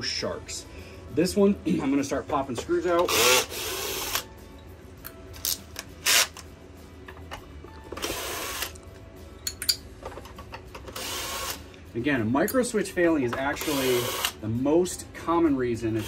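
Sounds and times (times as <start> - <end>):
cordless drill driving screws: 3.0 - 4.2, 8.0 - 8.8, 10.9 - 11.6, 13.6 - 14.4.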